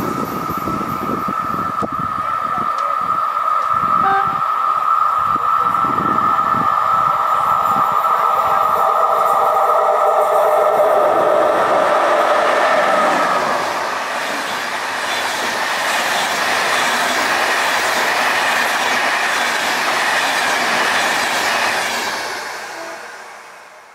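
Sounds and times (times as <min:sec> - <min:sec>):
train wheels rushing on rails: 0:00.0 - 0:23.9
steady multi-pitched tone: 0:04.0 - 0:05.5.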